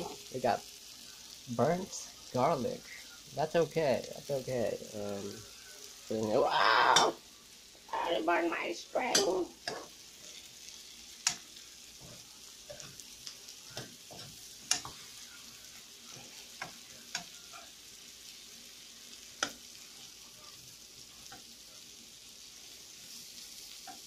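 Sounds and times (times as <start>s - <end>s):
shrimp sizzling in a frying pan: 0.0s - 24.0s
spoon scraping a pan: 9.1s - 17.8s.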